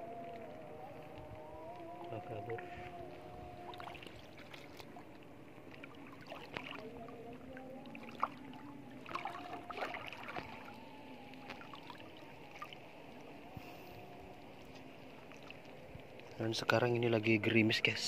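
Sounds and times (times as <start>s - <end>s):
feet wading through water: 0.0s - 16.4s
low hum: 0.0s - 17.6s
splashes and knocks: 9.0s - 10.7s.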